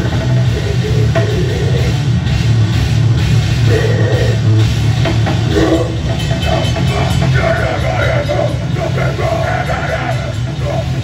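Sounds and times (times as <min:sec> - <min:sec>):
bass guitar: 0:00.0 - 0:11.0
drum kit: 0:00.0 - 0:11.0
electric guitar: 0:00.0 - 0:11.0.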